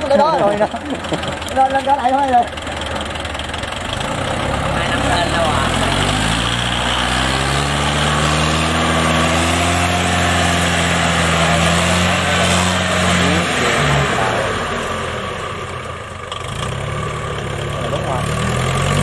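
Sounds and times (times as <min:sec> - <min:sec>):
tractor engine revving: 0:00.0 - 0:19.0.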